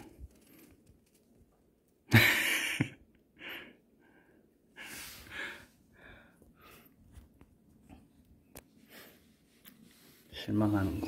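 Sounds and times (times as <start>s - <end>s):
person breathing: 3.4s - 7.2s, 8.7s - 10.3s.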